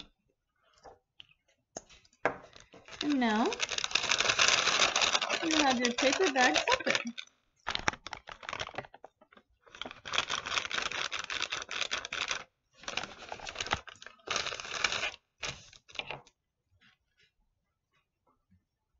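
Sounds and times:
paper bag crinkling: 2.5s - 9.0s, 9.7s - 16.0s.

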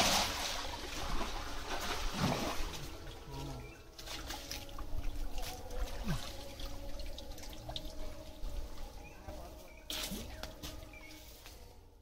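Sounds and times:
water splashing and dripping: 0.0s - 9.1s.

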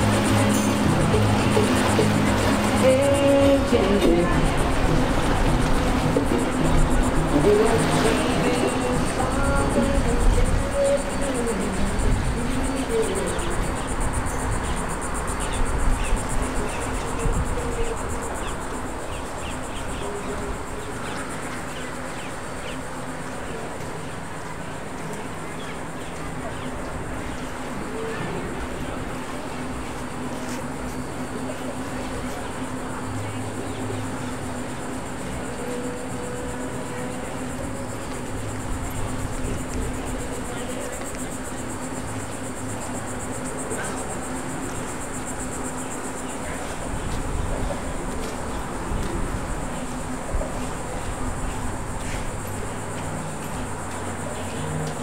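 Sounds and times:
low rumble and hum: 0.0s - 16.8s
insects trilling: 0.0s - 55.0s.

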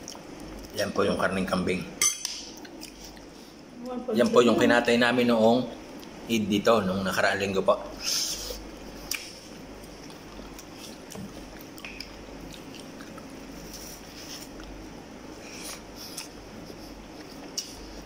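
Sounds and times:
man chewing: 2.6s - 3.4s, 8.0s - 18.0s.

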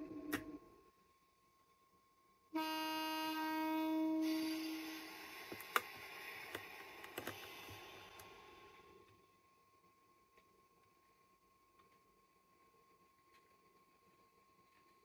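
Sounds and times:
train horn: 2.5s - 5.2s
train running noise: 3.9s - 8.9s.

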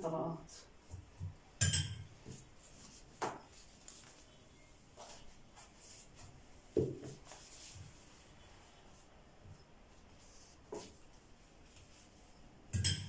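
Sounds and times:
pastry sheets rustling: 2.4s - 12.5s.

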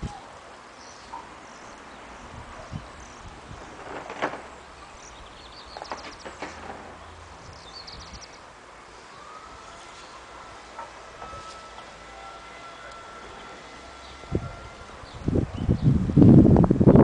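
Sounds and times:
small birds chirping: 0.0s - 11.6s.

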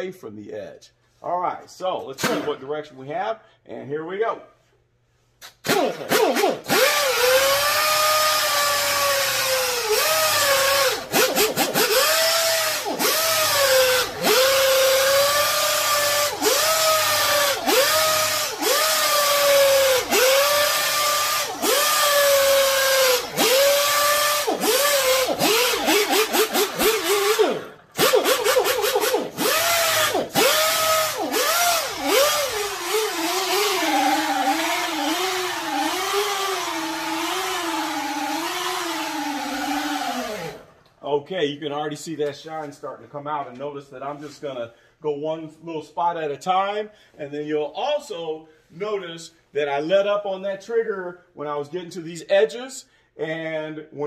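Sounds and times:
rotary buffer motor whine: 6.7s - 40.7s.

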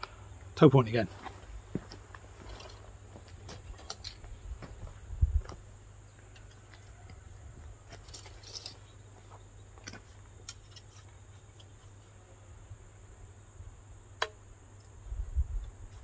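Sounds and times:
high insect drone: 0.0s - 16.0s
wind rumble on microphone: 4.2s - 5.6s, 15.0s - 16.0s
bow and arrows clicking: 14.2s - 15.0s.

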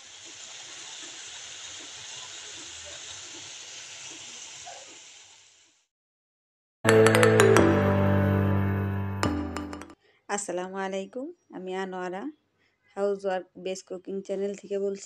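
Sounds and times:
vegetables sizzling in oil: 0.0s - 5.9s.

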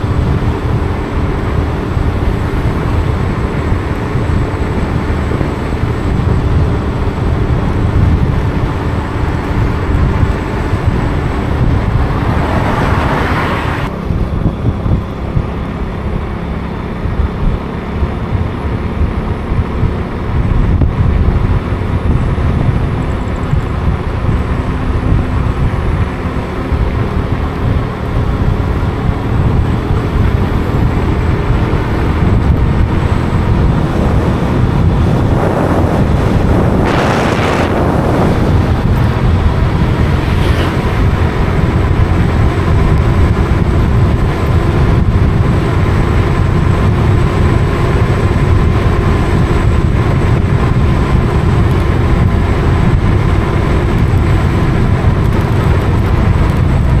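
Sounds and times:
loud rushing noise: 0.0s - 15.6s, 28.9s - 53.0s
moving vehicle running noise: 0.0s - 57.0s
wind buffeting microphone: 0.0s - 57.0s.

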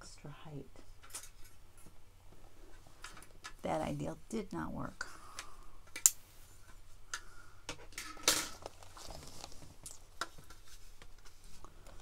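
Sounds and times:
rustling scrape: 8.4s - 12.0s.

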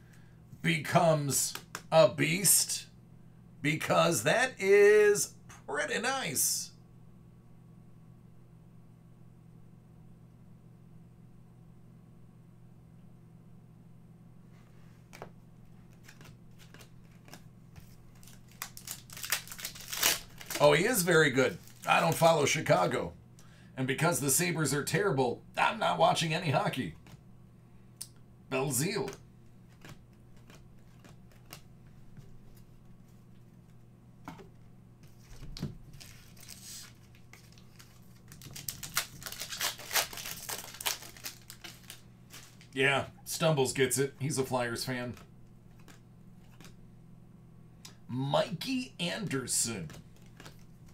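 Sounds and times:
trading cards being handled: 15.0s - 22.3s, 28.8s - 42.8s, 45.1s - 46.8s, 49.7s - 50.9s
foil wrapper crinkling: 15.9s - 22.3s, 35.2s - 42.8s.

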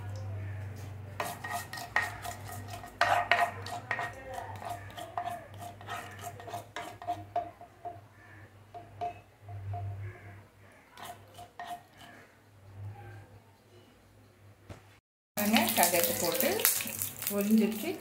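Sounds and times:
ladle clinking and scraping pan: 1.2s - 8.0s
seeds popping in hot oil: 15.4s - 18.0s.

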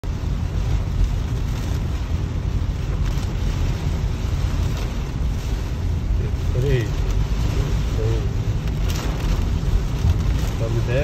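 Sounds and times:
heavy rain on a car: 0.0s - 11.0s
tyres on wet road: 0.0s - 11.0s
windshield wipers sweeping: 0.1s - 11.0s.

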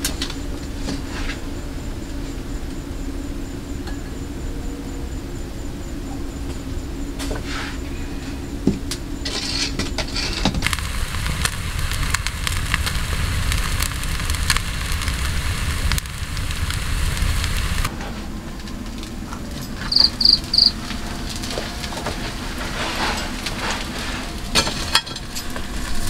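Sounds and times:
wood fire crackling: 0.0s - 26.0s
sharp pops: 10.6s - 17.9s.

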